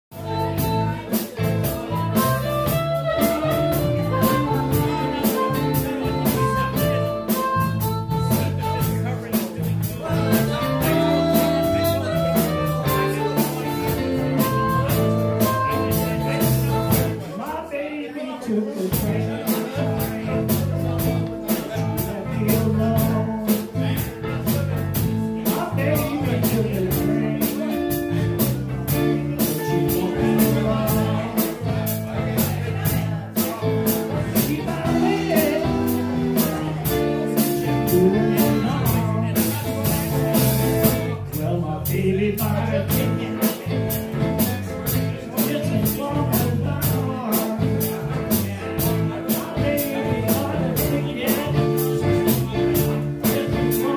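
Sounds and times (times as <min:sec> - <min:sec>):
harmonica: 0:00.1 - 0:09.0, 0:10.1 - 0:17.2
electric blues band playing: 0:00.1 - 0:17.8, 0:18.4 - 0:53.9.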